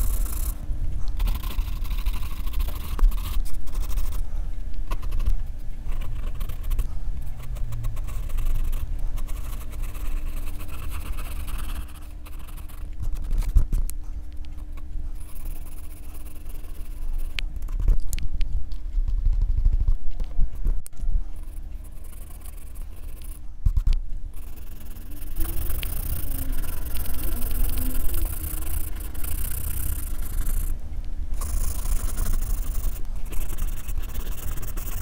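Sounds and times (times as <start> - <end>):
pencil scratching on paper: 0.0 - 4.3, 4.9 - 13.8, 21.4 - 30.8, 31.4 - 35.0
steady low hum: 0.0 - 35.0.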